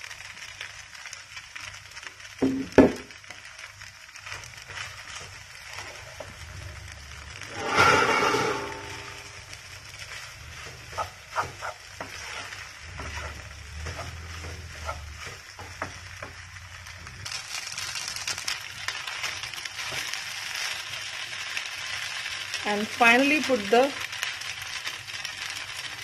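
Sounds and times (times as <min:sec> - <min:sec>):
noodles sizzling in a pan: 0:00.0 - 0:26.0
wooden spatula scraping and tapping: 0:04.2 - 0:06.4, 0:10.0 - 0:16.4.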